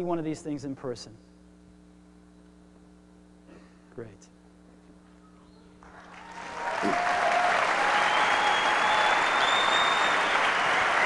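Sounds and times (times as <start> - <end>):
large audience applauding: 5.8 - 11.0
high whistles: 7.0 - 11.0.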